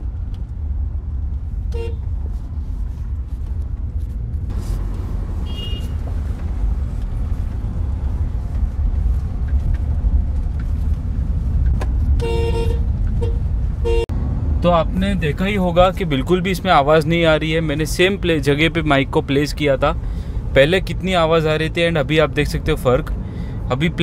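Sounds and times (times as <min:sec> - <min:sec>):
tyre and road rumble: 0:00.0 - 0:24.0
car horn toot: 0:01.7 - 0:02.1, 0:05.4 - 0:06.1, 0:12.2 - 0:14.1.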